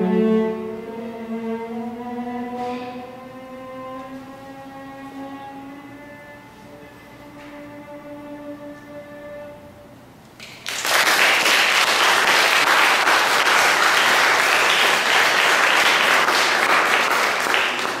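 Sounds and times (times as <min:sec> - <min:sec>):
audience applause: 0:10.4 - 0:18.0.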